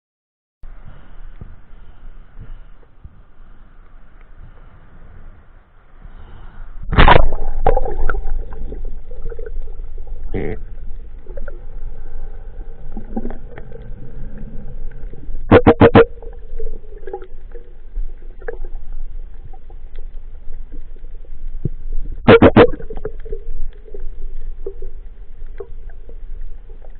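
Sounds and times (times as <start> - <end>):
faint steady hum: 0.6 - 26.9
muffled underwater sound: 0.7 - 26.9
splash: 6.9 - 9.9, 22.3 - 26.9.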